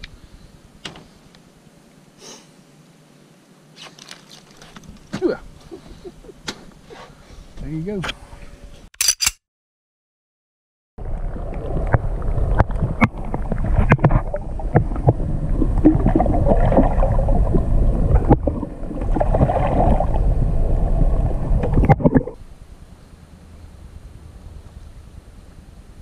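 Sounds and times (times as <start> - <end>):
low rumble: 11.0 - 26.0
muffled underwater rushing water: 11.0 - 26.0.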